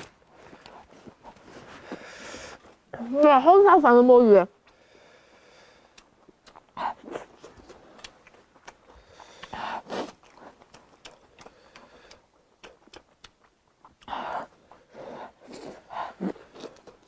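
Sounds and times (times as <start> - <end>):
person chewing with mouth clicks: 0.0 - 2.9, 4.6 - 17.0.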